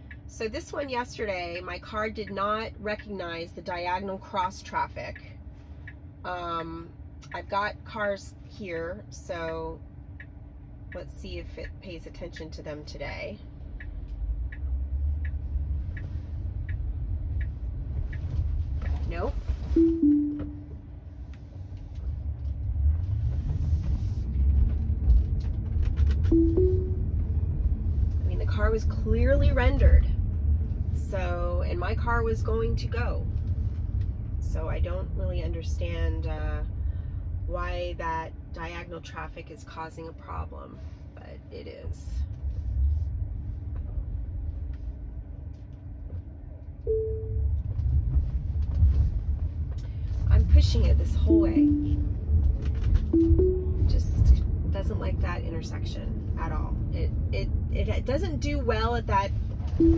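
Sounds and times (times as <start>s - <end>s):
car cabin road rumble: 0.0s - 59.9s
short steady tone: 19.7s - 20.8s, 26.3s - 27.2s, 46.9s - 47.5s, 51.3s - 52.2s, 53.2s - 54.1s
falling two-note car chime: 19.8s - 20.7s, 26.4s - 27.1s, 53.2s - 53.9s.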